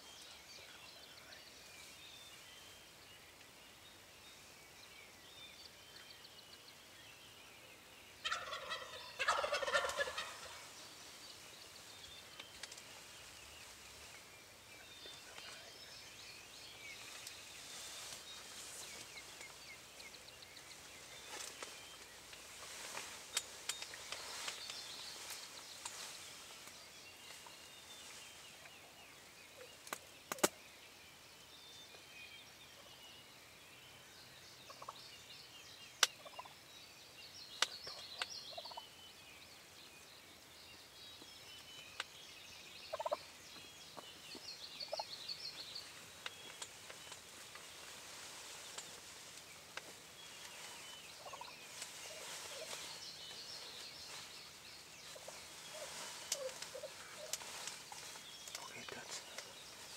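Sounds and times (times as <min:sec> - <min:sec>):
faint outdoor ambience: 0:00.0 - 0:59.9
distant turkey gobbling: 0:08.2 - 0:10.6, 0:42.9 - 0:43.2, 0:51.2 - 0:52.8
sharp clicks: 0:29.8 - 0:30.6.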